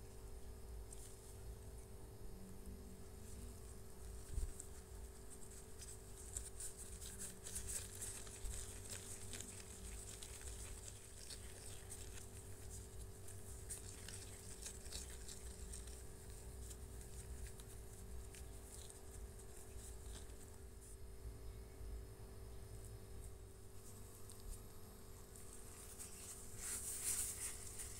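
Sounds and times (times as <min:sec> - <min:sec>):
faint steady hum: 0:00.0 - 0:27.9
hands squishing dough: 0:03.4 - 0:20.7.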